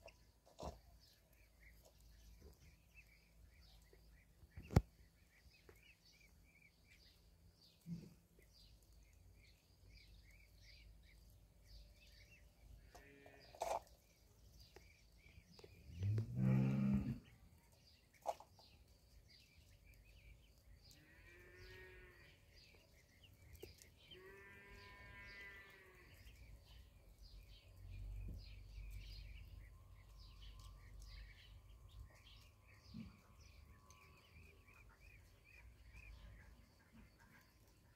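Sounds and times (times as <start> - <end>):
ducklings peeping: 0.0 - 12.9, 22.4 - 24.2, 25.3 - 37.9
cow mooing: 16.0 - 17.2.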